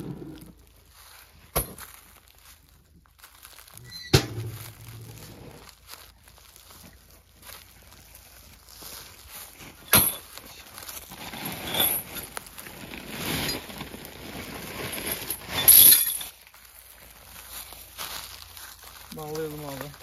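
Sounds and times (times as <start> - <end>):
footsteps on dry leaves: 0.1 - 20.0
heavy chain clinking and rattling: 9.8 - 16.5.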